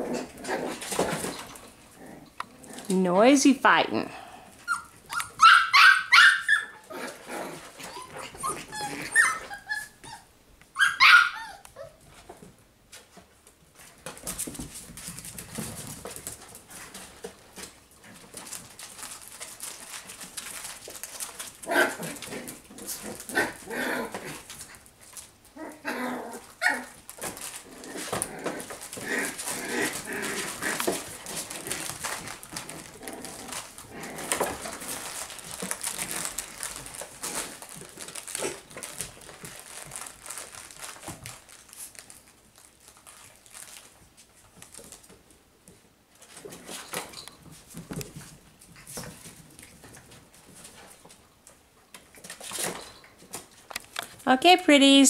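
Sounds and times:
puppies barking and yipping: 4.6s - 12.0s.

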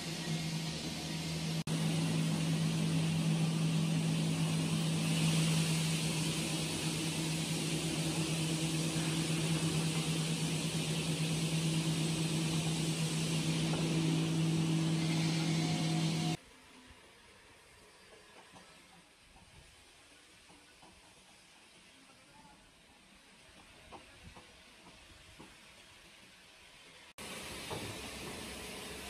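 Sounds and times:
machinery hum: 0.0s - 16.4s
even hiss: 0.0s - 18.3s.

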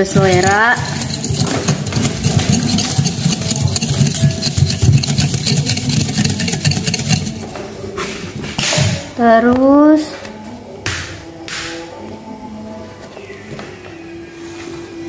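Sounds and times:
whisk clattering in glass bowl: 0.0s - 7.5s.

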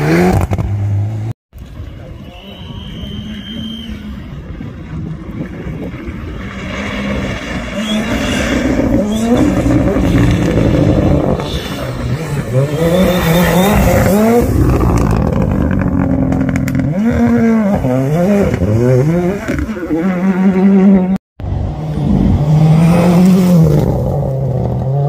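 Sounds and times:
rally car engine revving: 6.0s - 25.0s.

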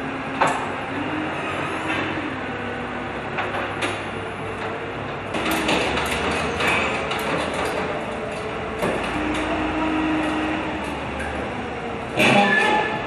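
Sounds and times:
forklift engine droning: 0.0s - 13.0s
metal clanks and rattles: 3.4s - 9.6s.

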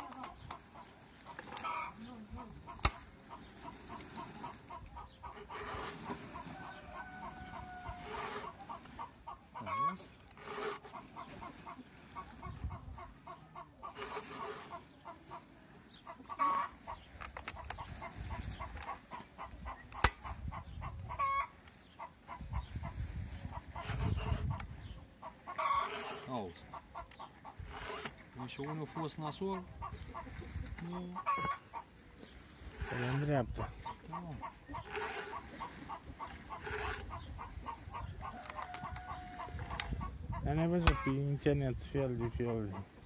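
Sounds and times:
chickens clucking: 0.0s - 43.0s
file rasping on chainsaw chain: 10.4s - 11.0s, 13.9s - 14.8s, 25.6s - 26.4s, 27.6s - 28.2s, 32.7s - 33.5s, 34.8s - 37.2s.

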